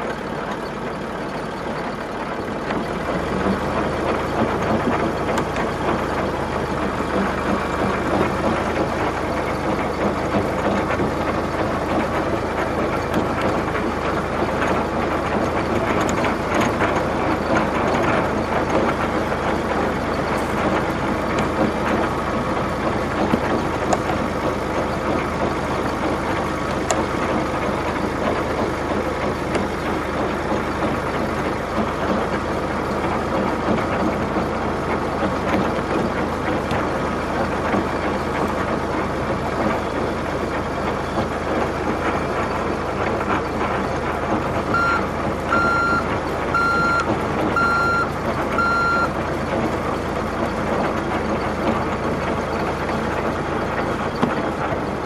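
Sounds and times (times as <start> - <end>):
heavy engine idling: 0.0 - 55.0.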